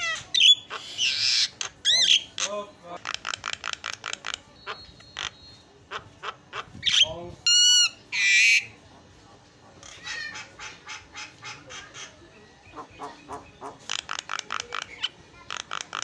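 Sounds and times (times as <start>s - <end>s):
bird singing harsh repeated notes: 0.0s - 8.7s.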